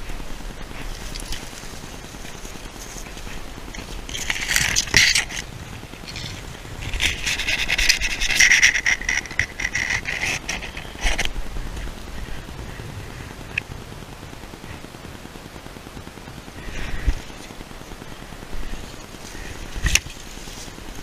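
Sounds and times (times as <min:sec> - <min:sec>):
dry leaves rustling: 0:00.0 - 0:21.0.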